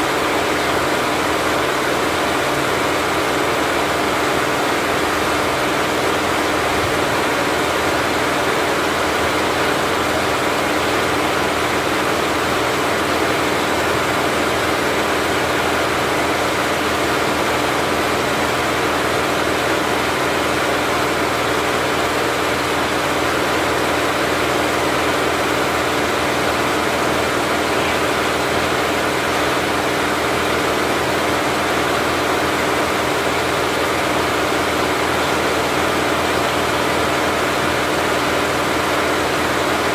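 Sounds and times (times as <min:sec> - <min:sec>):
embroidery machine mechanical drone: 0:03.0 - 0:34.3.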